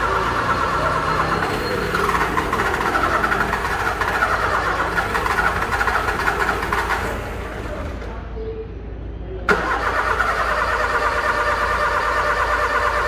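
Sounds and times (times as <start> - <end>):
car starter solenoid clicking rapidly: 9.5 - 13.0.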